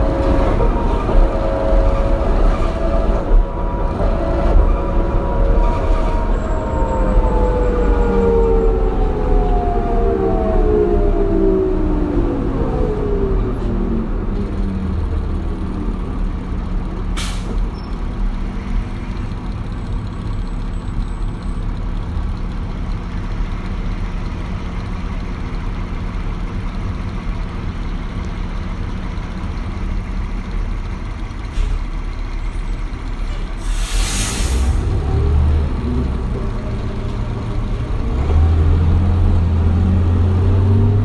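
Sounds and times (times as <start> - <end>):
diesel bus engine: 0.0 - 41.0
air brake hiss: 17.2 - 17.6, 31.5 - 31.8, 33.4 - 34.9.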